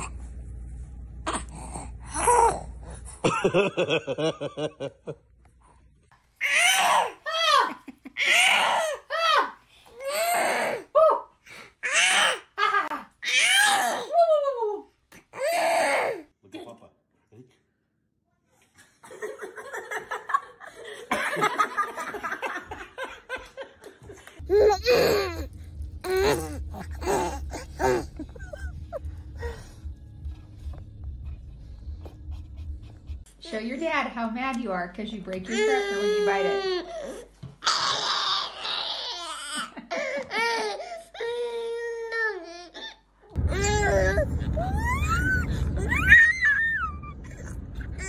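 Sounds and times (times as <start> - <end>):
low steady hum: 0.0 - 6.2, 24.2 - 37.2, 43.4 - 48.0
person laughing: 26.1 - 29.6.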